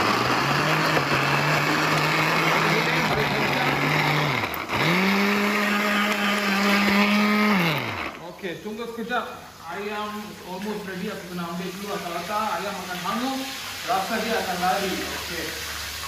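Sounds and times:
blender motor grinding: 0.0s - 8.3s.

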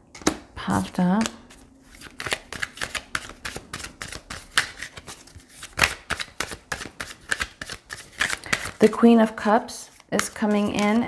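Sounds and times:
cards being shuffled: 0.2s - 8.9s, 9.9s - 11.0s.

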